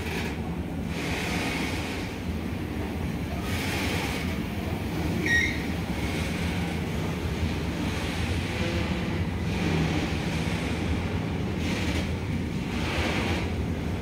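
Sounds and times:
train wheels rumbling on rails: 0.0s - 14.0s
high-pitched wheel squeal: 5.2s - 5.8s.

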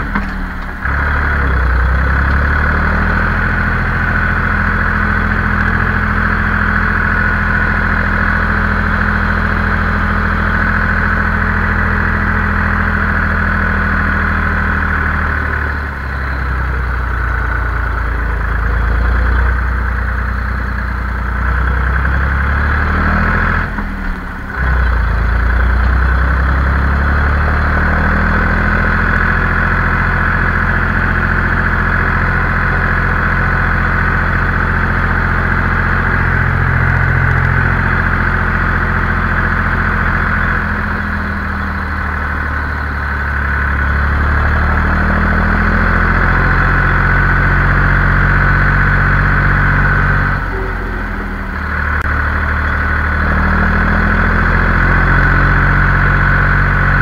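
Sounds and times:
high whine: 0.0s - 57.0s
tractor diesel engine running: 0.0s - 57.0s.

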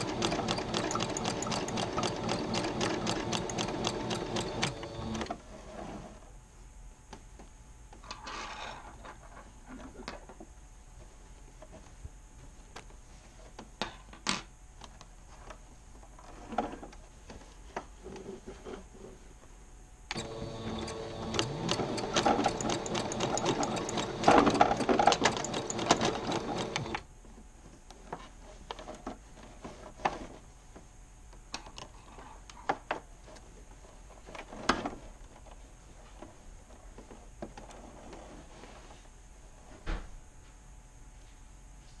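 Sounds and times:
sewing machine stitching: 0.0s - 5.4s, 20.1s - 27.0s.

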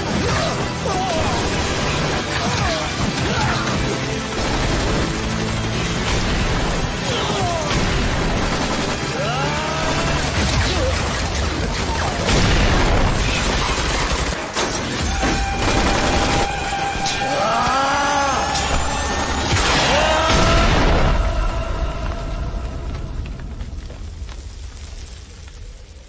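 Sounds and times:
automatic gunfire: 1.1s - 16.9s
explosions: 9.8s - 17.1s, 18.6s - 25.8s.

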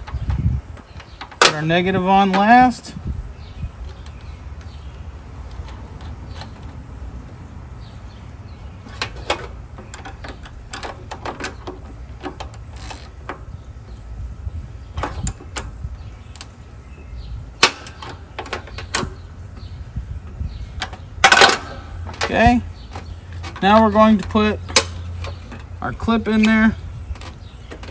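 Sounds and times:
low steady rumble: 0.0s - 27.9s
ratcheting wrench clicking: 11.8s - 13.4s.

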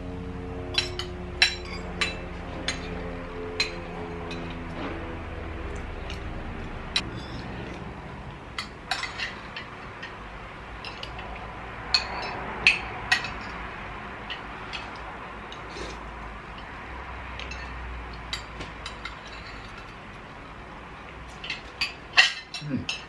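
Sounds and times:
steady low hum: 0.0s - 23.0s
cutlery clinking against plates: 8.6s - 10.2s, 10.8s - 11.3s, 17.4s - 20.0s, 21.3s - 23.0s.

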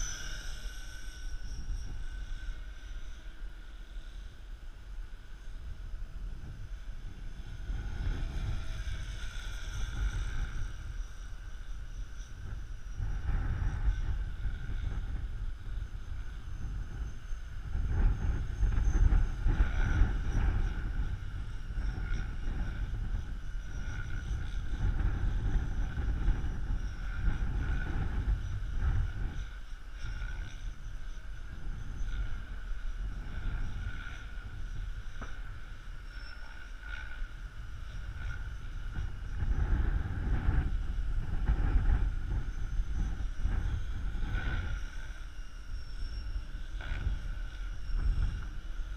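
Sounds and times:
model aircraft motor whine: 0.0s - 48.9s
wind buffeting microphone: 0.0s - 48.9s.

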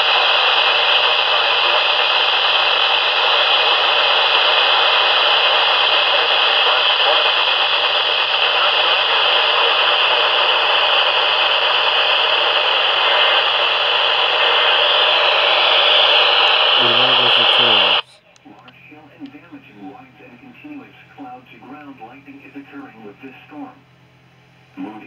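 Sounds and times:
radio static hiss: 0.0s - 18.2s.

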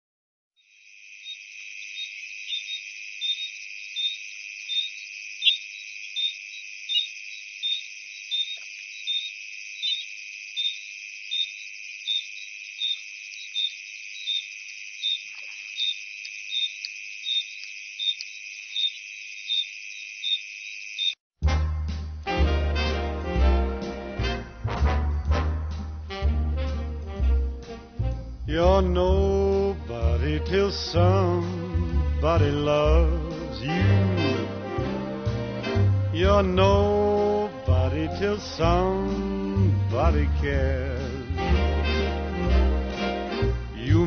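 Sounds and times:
insect chirp: 0.6s - 21.2s
insects high drone: 0.6s - 21.2s.

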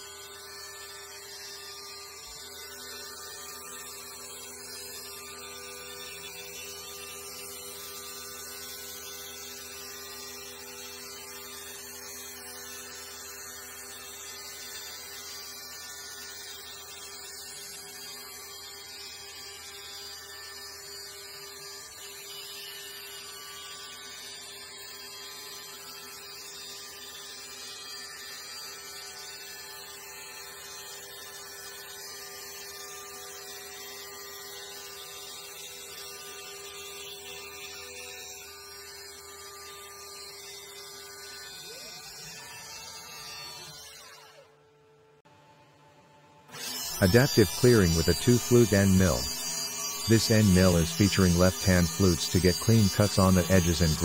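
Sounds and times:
milling machine cutting wood: 46.5s - 54.0s
steady hum: 47.0s - 54.0s.

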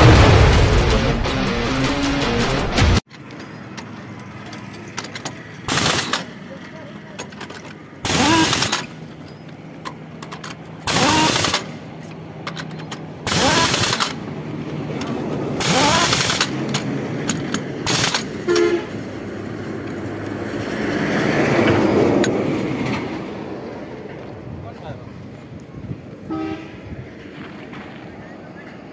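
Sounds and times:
truck engine running: 0.0s - 28.9s
loud short noise bursts: 8.0s - 9.0s, 10.9s - 11.8s, 13.2s - 14.2s, 15.6s - 16.6s, 17.8s - 19.0s
horn toot: 17.9s - 19.0s, 26.2s - 27.0s.

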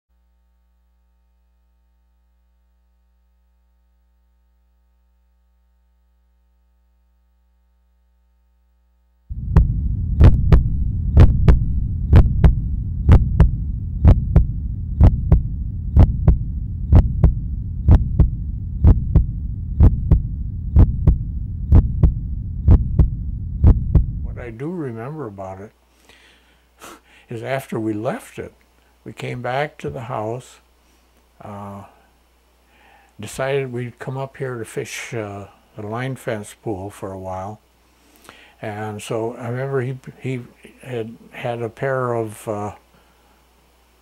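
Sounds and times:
loud low hum: 9.2s - 25.3s.

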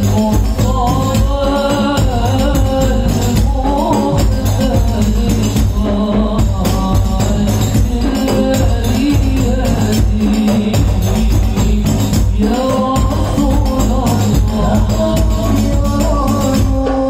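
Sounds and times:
frame drums beating a rhythm: 0.0s - 17.0s
group of men singing: 0.0s - 17.0s.

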